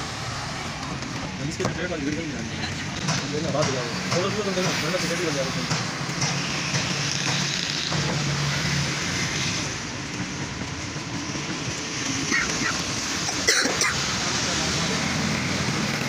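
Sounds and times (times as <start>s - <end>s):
road traffic: 0.0s - 16.0s.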